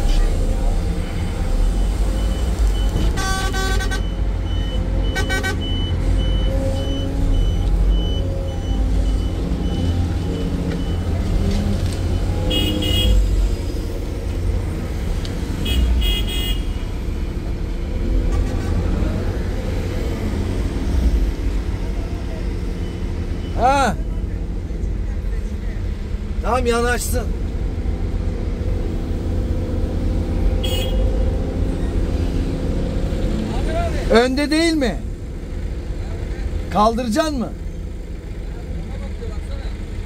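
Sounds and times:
heavy diesel engines running: 0.0 - 40.0
short horn toots: 12.4 - 13.3, 30.6 - 31.2.

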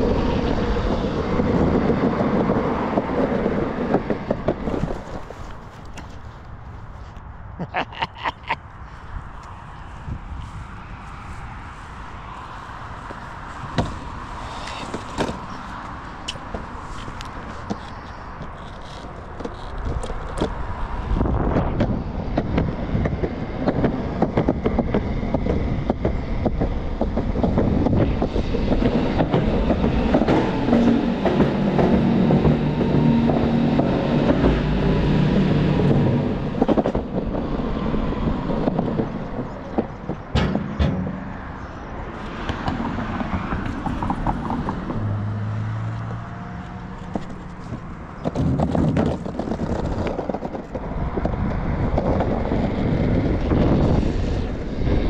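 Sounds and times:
skateboard wheels rumbling on pavement: 0.0 - 7.2, 8.6 - 55.0
wheels clicking over cracks: 0.8 - 7.1, 12.9 - 41.4, 45.8 - 54.6.

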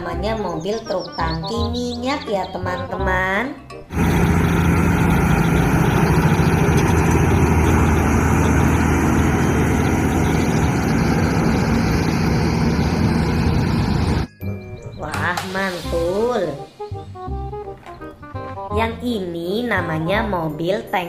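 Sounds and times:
truck diesel engine driving past: 3.9 - 14.3.

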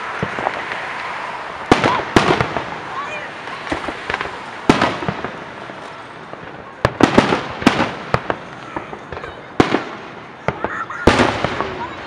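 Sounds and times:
fireworks bursting with booms: 0.0 - 12.0.

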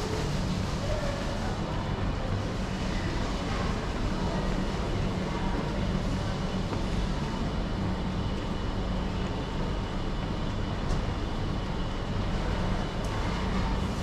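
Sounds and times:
low rumble and hiss: 0.0 - 14.0.

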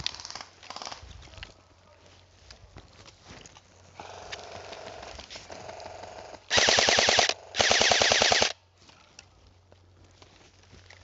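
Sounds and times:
airsoft rifle automatic fire: 6.5 - 8.6.

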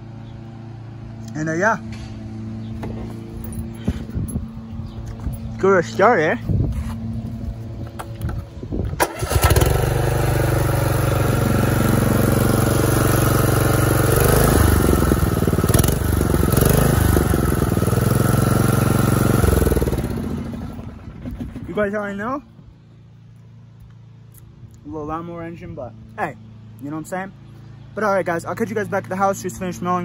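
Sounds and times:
lawn mower engine running: 0.0 - 1.3, 7.1 - 24.3.

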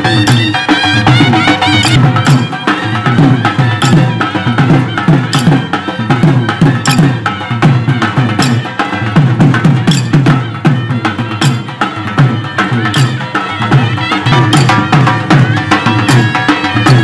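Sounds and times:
fast drumming: 0.0 - 17.0
sharp clacks: 3.8 - 4.1, 5.3 - 5.7, 6.9 - 7.2, 9.9 - 10.3, 12.9 - 13.3.

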